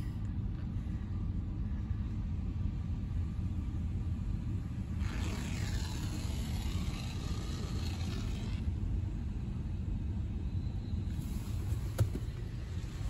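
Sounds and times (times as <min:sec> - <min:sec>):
car wash rumble: 0:04.6 - 0:08.9, 0:11.1 - 0:13.0.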